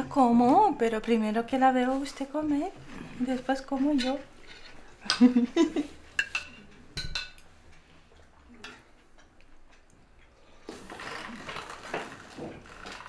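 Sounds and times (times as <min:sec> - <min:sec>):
cutlery clinking against plates: 0:03.9 - 0:05.4, 0:06.1 - 0:07.5.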